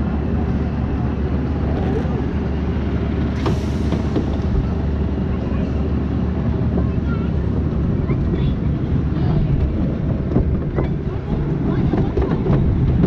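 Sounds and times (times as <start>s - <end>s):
roller coaster rumbling on track: 0.0s - 13.0s
hiss of air: 3.3s - 4.5s.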